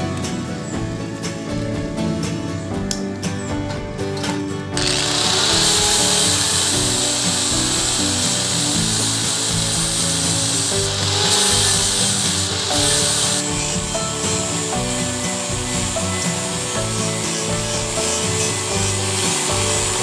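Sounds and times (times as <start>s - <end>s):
background music: 0.0s - 20.0s
power tool running: 4.8s - 20.0s.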